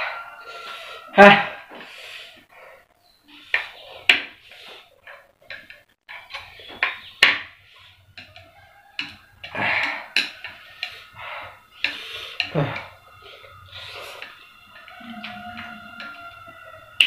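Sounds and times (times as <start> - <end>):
chopsticks clicking on a plate: 8.1 - 11.2.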